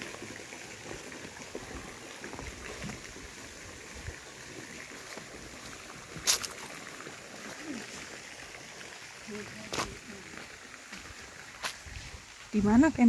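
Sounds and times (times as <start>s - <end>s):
water flowing over stone steps: 0.0s - 13.0s
footsteps on stone path: 1.4s - 4.0s, 5.0s - 6.8s, 9.7s - 13.0s.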